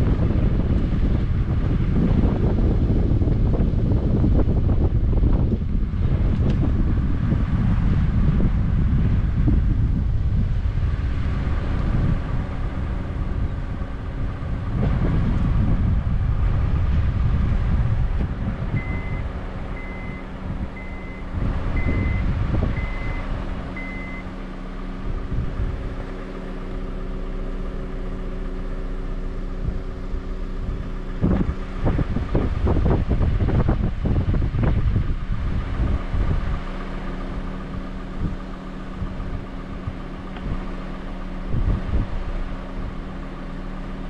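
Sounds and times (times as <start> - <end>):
steady low hum: 0.0 - 44.0
wind buffeting microphone: 0.0 - 44.0
short high beeps: 18.8 - 19.2, 19.8 - 20.2, 20.8 - 21.2, 21.8 - 23.2, 23.8 - 24.2.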